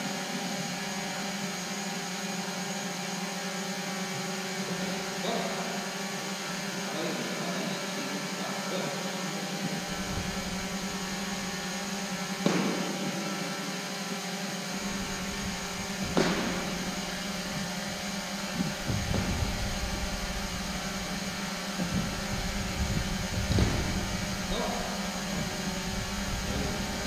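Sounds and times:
steady hall hum: 0.0 - 27.0
footwork thuds on floor mat: 9.8 - 13.0, 14.8 - 27.0.

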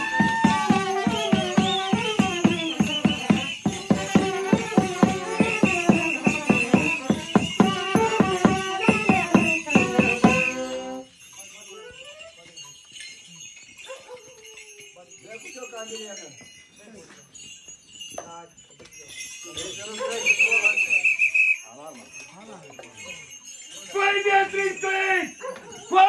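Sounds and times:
fast drum beat: 0.0 - 10.7
shrill trilling pipe melody: 0.0 - 12.5
jingling bells: 0.0 - 26.0
voices: 0.0 - 26.0.

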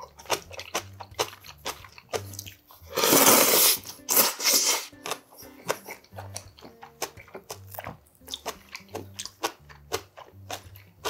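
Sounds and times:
wet chewing: 0.0 - 11.0
loud noodle slurps: 0.2 - 4.9.

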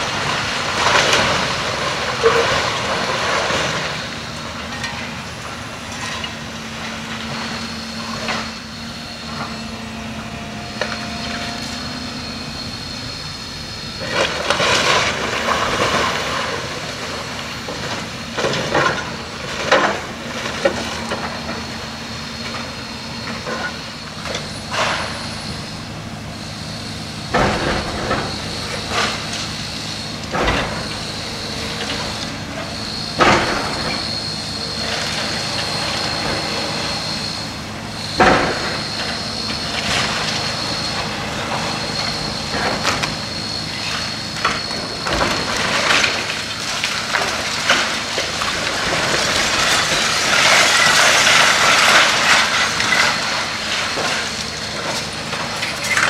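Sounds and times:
debris crunching and crashing: 0.0 - 9.7, 12.3 - 56.0
demolition machine engine whining: 0.0 - 56.0.

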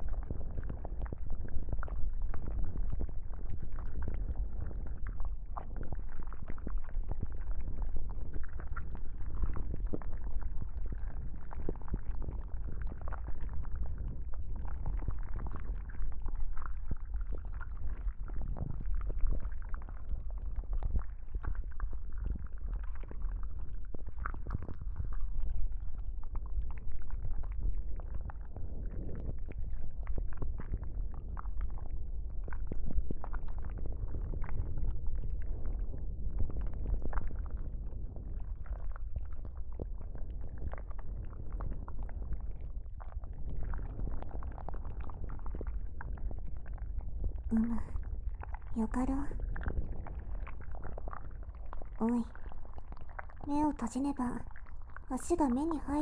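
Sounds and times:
deep rumble: 0.0 - 56.0
small crackles: 0.0 - 56.0.

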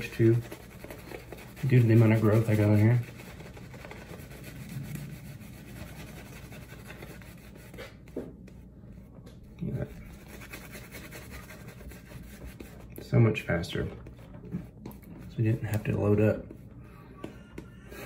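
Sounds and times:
shaving brush scrubbing lather: 0.0 - 7.9, 9.7 - 13.8.

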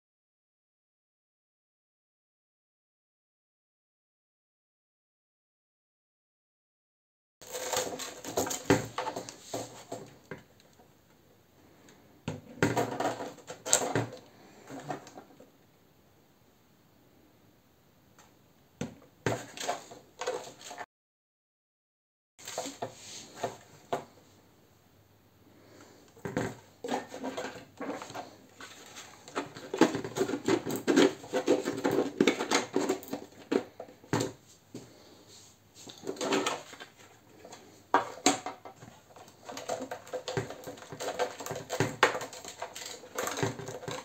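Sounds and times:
plastic model being moved about: 7.4 - 10.8, 11.9 - 15.4, 19.2 - 20.8, 22.4 - 24.2, 26.1 - 34.9, 35.8 - 44.0.

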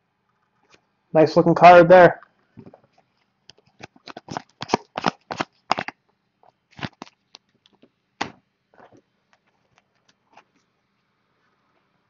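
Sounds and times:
cards slapping onto a stack: 4.1 - 6.0.

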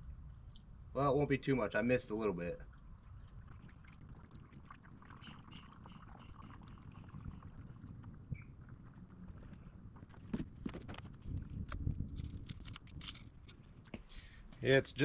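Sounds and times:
oil pouring from jug: 2.6 - 9.8.

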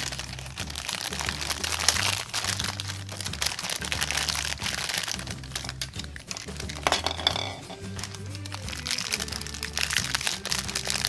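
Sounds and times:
cellophane crinkling: 0.0 - 11.0.

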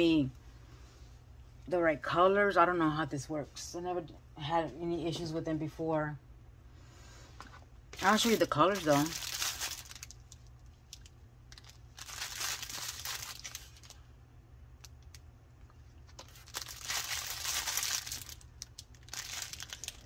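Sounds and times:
low steady hum: 0.0 - 20.0
plastic packaging crinkling: 8.0 - 14.0, 14.8 - 20.0.

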